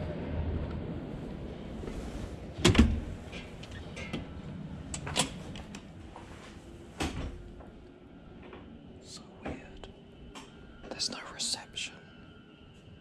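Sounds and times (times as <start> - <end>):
glass door clunk and rattle: 2.6 - 4.2.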